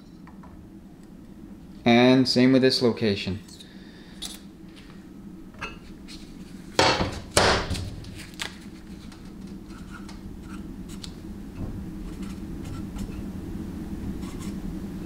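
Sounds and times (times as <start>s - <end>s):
marker pen scratching on metal: 12.1s - 13.2s, 14.2s - 14.6s.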